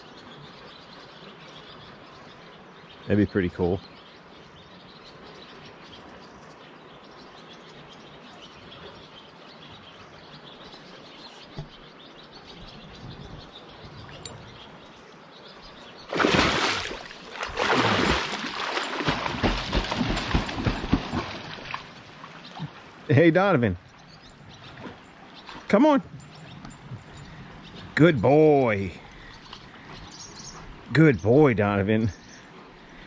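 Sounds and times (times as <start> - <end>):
river flowing: 13.5 - 33.0
water splashing: 16.0 - 23.2
bird chirps: 23.6 - 33.0.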